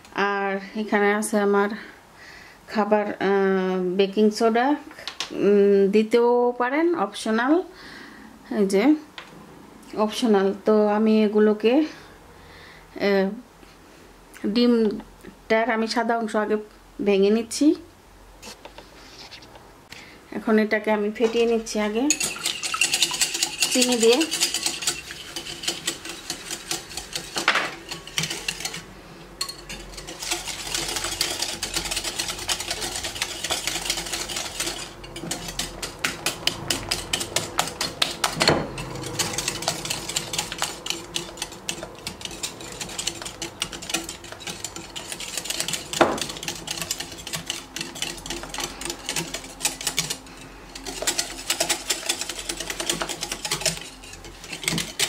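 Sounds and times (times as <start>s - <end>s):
whisk clicking against glass bowl: 22.1s - 28.8s, 29.4s - 50.2s, 50.8s - 55.0s.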